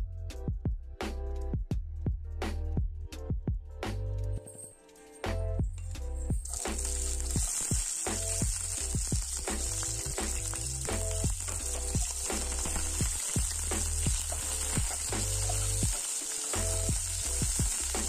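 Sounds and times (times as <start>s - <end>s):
music with regular beat: 0.0s - 4.3s, 5.2s - 18.0s
vegetables sizzling in hot oil: 6.4s - 18.0s
spatula stirring in pan: 6.5s - 18.0s.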